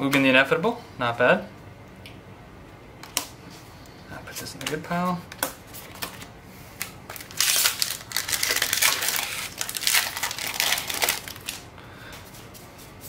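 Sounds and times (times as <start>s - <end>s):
foil wrapper tearing and crinkling: 7.1s - 11.7s.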